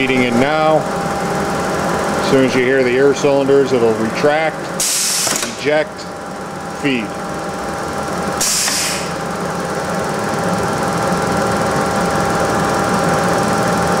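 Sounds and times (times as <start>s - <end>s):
compressed air hiss: 4.8s - 5.4s, 8.4s - 9.2s.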